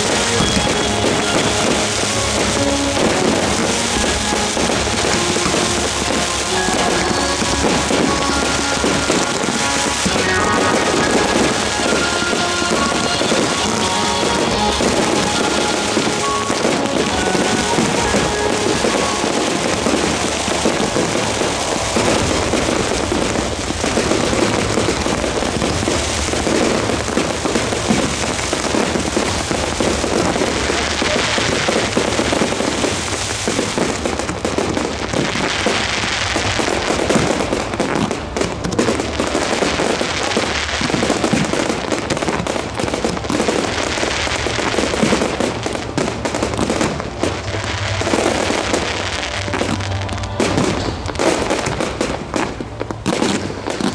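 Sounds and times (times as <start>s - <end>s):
fireworks bangs and crackles: 0.0s - 53.9s.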